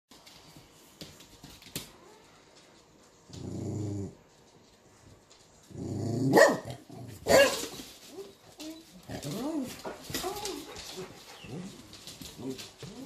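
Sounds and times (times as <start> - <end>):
dog growling: 3.3 - 4.2, 5.7 - 7.2
dog barking: 6.3 - 7.7.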